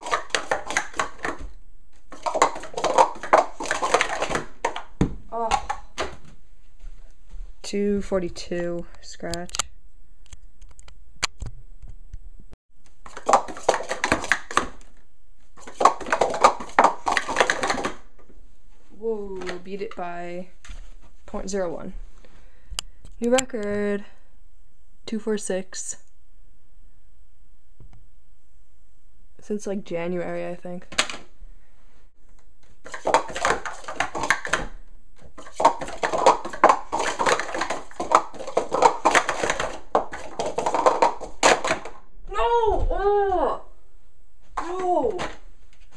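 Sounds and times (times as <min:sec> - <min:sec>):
plastic cups clattering: 0:00.0 - 0:06.2, 0:13.0 - 0:15.0, 0:15.6 - 0:18.3, 0:19.4 - 0:19.8, 0:32.6 - 0:42.0.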